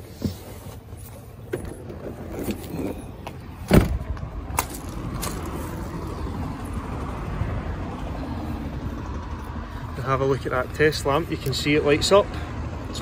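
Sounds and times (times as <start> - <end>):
handling and movement noises: 0.0 - 6.2.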